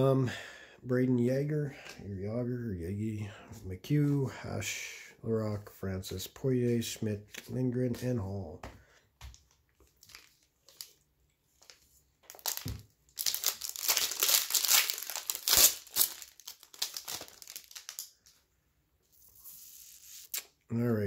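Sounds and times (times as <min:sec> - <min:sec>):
foil wrapper crinkling: 0:09.8 - 0:18.4.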